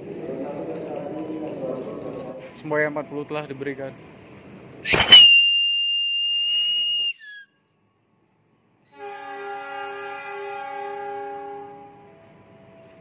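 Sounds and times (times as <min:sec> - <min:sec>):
hand whistle blast: 0:04.8 - 0:07.5.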